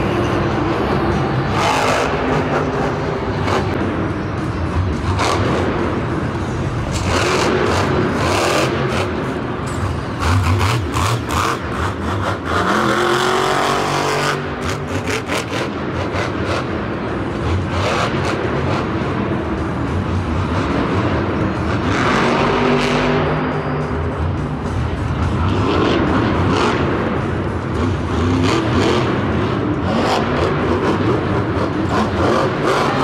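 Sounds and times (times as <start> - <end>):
monster truck engines revving: 0.0 - 33.0.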